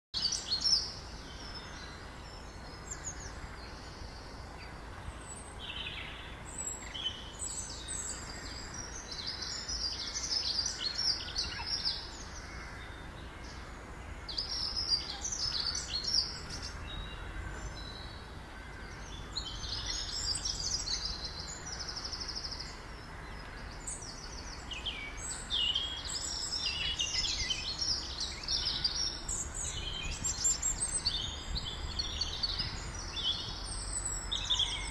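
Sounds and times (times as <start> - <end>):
low outdoor rumble: 0.3 - 34.9.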